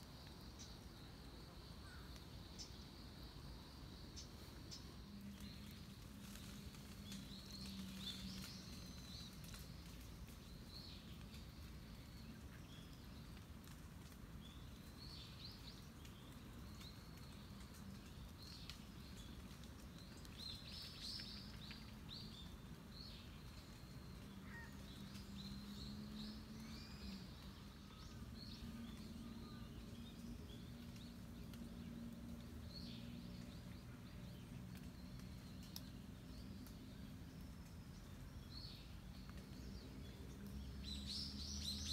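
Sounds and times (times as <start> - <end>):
small birds chirping: 0.0 - 41.9.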